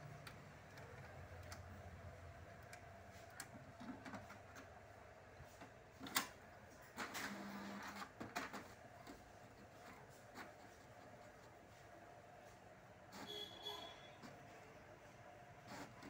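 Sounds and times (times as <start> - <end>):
faint clicks and taps: 0.0 - 4.8.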